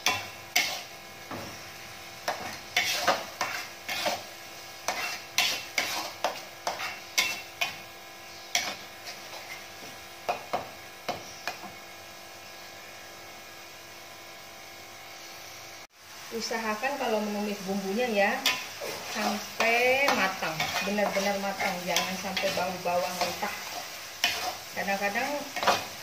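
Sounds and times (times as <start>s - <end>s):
metal ladle scraping a wok: 0.0s - 1.0s, 2.3s - 7.8s, 18.4s - 26.0s
paste sizzling: 0.0s - 11.6s, 16.2s - 26.0s.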